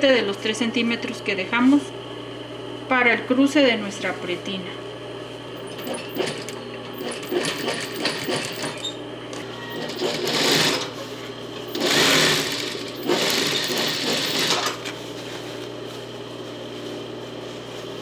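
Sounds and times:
sewing machine stitching: 5.6 - 9.0, 9.7 - 11.0, 11.7 - 14.8
sewing machine hum and clicks: 5.6 - 11.0, 11.6 - 15.0.

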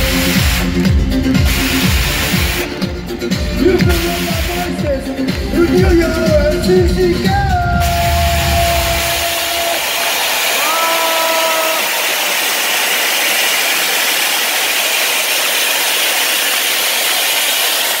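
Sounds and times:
backing music: 0.0 - 10.8
crowd cheering and applauding: 0.0 - 18.0.

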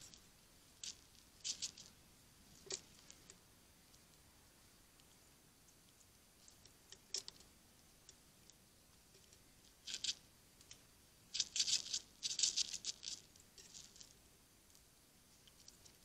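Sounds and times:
squirrel claws scratching wood: 0.8 - 1.9, 9.8 - 10.2, 11.4 - 14.2.

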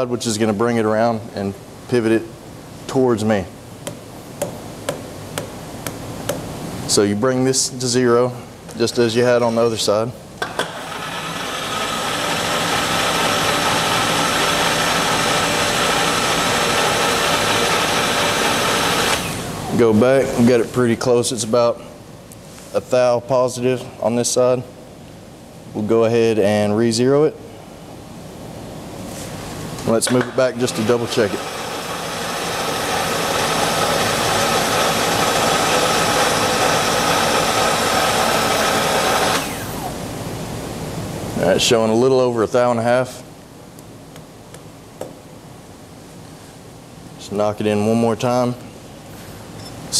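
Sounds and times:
machine power feed whine and hum: 0.0 - 49.9
machine feed motor whirring: 10.4 - 19.8, 30.5 - 40.1.

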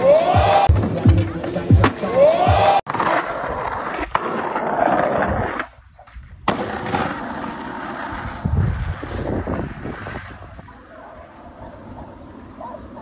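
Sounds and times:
skateboard wheels rolling on concrete: 0.0 - 13.0.

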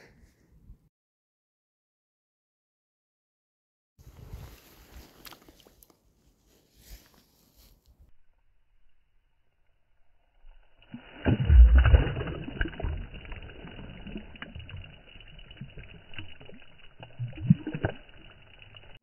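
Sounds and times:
water splashing and sloshing: 10.8 - 19.0
water dripping: 11.0 - 19.0.

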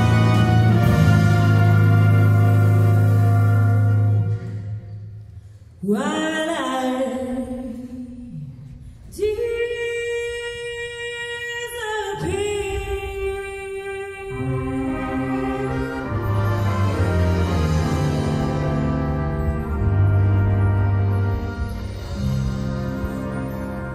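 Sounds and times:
big band accompaniment: 0.0 - 5.5, 13.8 - 23.9
woman singing jazz ballad: 9.2 - 15.9.

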